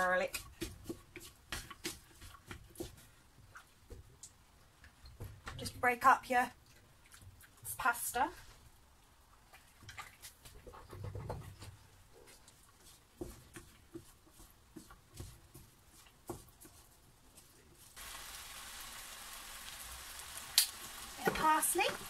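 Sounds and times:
frying sizzle: 17.8 - 22.0.

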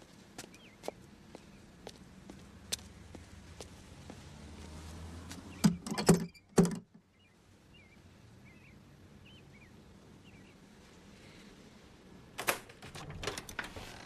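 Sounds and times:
faint bird chirps: 0.4 - 1.7, 5.5 - 11.5.

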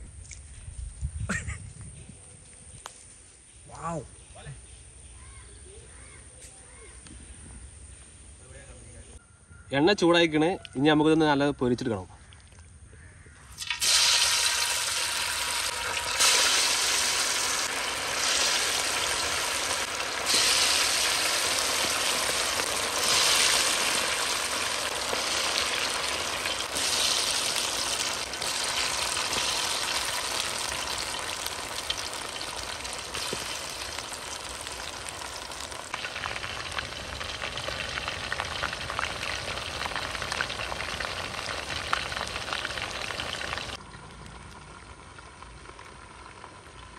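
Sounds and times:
chicken sizzling in hot oil: 13.5 - 43.8, 44.8 - 46.9.

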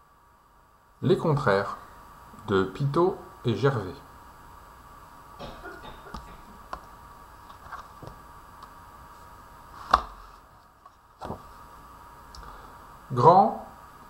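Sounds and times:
paper rustling: 7.4 - 8.2, 9.8 - 11.5
book pages turning: 7.4 - 8.8, 9.7 - 11.5.

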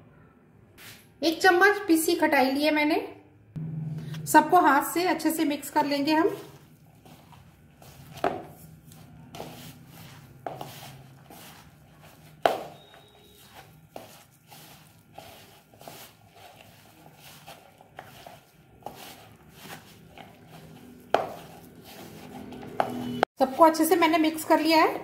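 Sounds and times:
hand kneading moist mixture: 5.1 - 24.6.

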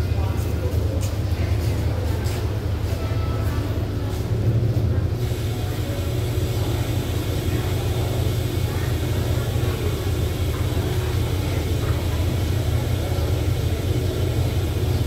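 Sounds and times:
diesel train idling: 0.0 - 15.0
steady hiss: 5.2 - 15.0.

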